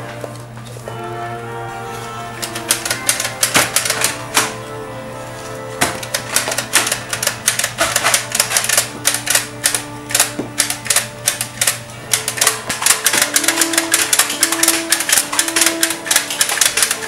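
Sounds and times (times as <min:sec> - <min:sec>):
background music: 0:00.0 - 0:17.0
rapid sharp clicks: 0:02.4 - 0:04.5, 0:06.0 - 0:17.0.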